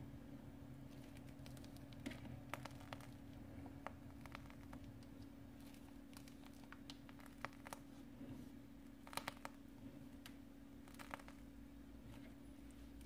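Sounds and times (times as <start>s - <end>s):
steady low hum: 0.0s - 13.0s
plastic piping bag crinkling: 0.8s - 8.1s, 8.9s - 9.6s, 10.8s - 11.5s.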